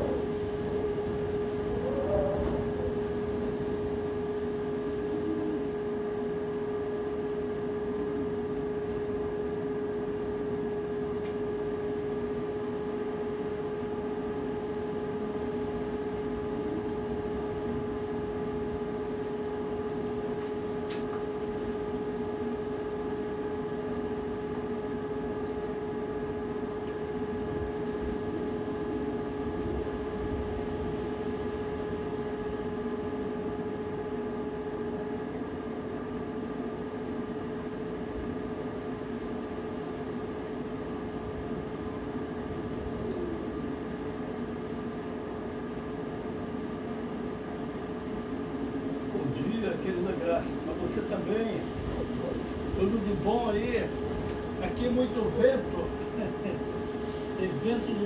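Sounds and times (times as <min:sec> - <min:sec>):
wind rumbling on microphone: 0:00.0 - 0:04.0
steady droning tone: 0:00.0 - 0:58.0.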